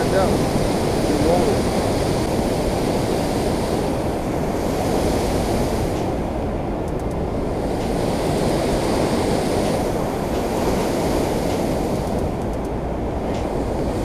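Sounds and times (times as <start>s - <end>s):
water rushing over a spillway: 0.0s - 6.2s.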